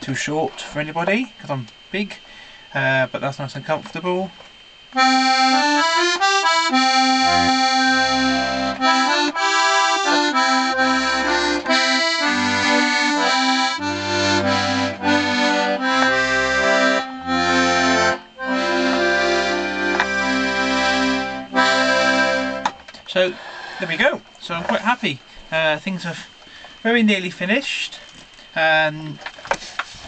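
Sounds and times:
accordion playing a tune: 5.0 - 22.7.

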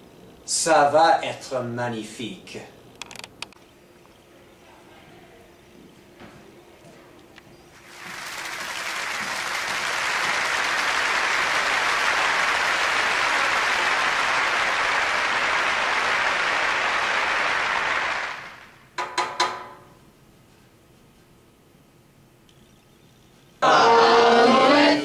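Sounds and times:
audience applauding: 7.8 - 18.8.

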